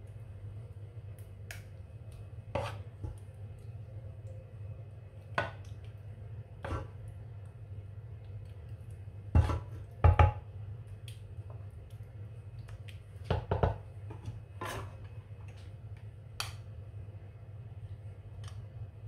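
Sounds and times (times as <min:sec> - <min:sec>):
steady low hum: 0:00.0 - 0:19.0
wooden spoon knocking on pan: 0:09.3 - 0:10.4, 0:13.3 - 0:14.2.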